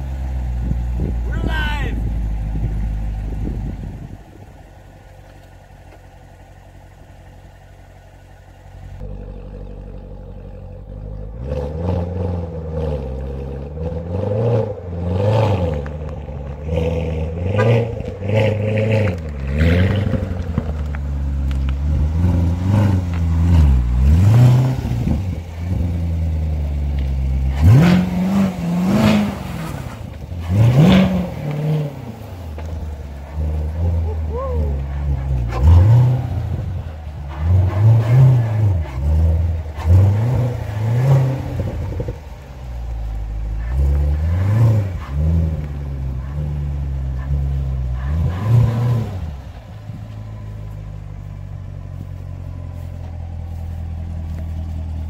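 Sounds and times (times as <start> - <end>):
car engine idling and revving: 0.0 - 55.0.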